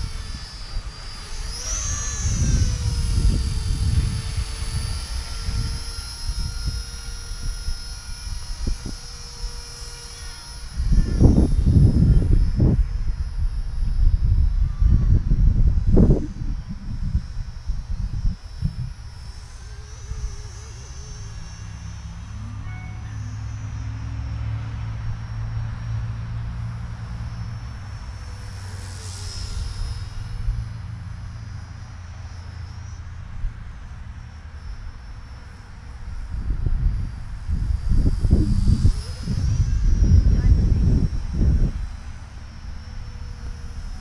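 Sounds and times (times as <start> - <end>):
wind and handling rumble: 0.0 - 23.7, 35.5 - 44.0
rc helicopter rotors whining: 0.0 - 44.0.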